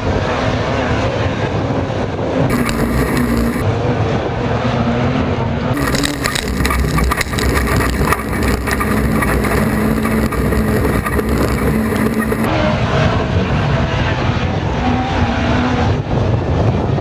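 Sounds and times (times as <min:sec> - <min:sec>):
racing car engines from trackside: 0:00.0 - 0:17.0
racing car engine from inside: 0:02.5 - 0:03.6, 0:04.4 - 0:16.2.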